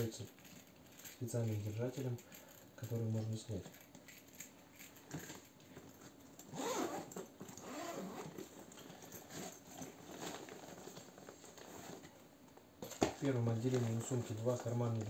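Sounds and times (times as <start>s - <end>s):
leather rustling and rubbing: 5.9s - 12.2s
zipper unzipping: 6.5s - 8.4s.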